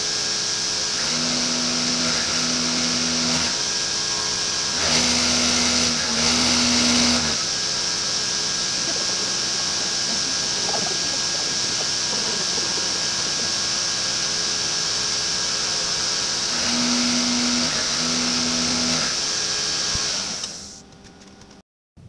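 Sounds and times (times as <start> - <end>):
milling machine cutting metal: 0.0 - 21.0.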